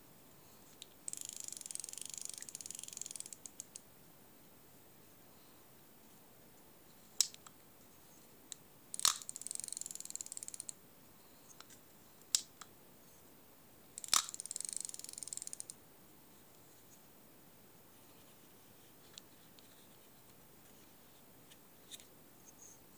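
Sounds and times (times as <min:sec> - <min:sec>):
fishing reel ratchet ticking: 0:01.1 - 0:03.4, 0:09.0 - 0:10.7, 0:14.0 - 0:15.7
fishing reel bail click: 0:01.1 - 0:03.6, 0:14.0 - 0:15.7.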